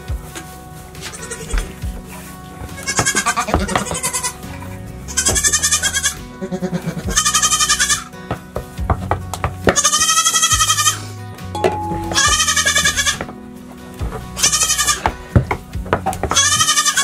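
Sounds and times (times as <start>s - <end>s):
background music: 0.0s - 17.0s
goats bleating: 1.0s - 2.0s, 2.6s - 8.2s, 9.7s - 11.2s, 11.9s - 13.4s, 14.0s - 17.0s.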